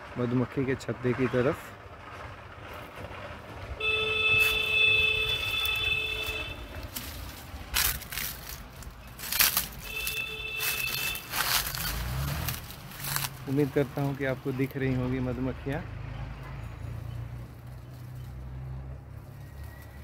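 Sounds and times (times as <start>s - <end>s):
footsteps through dry leaves: 3.8s - 14.9s, 17.5s - 20.0s.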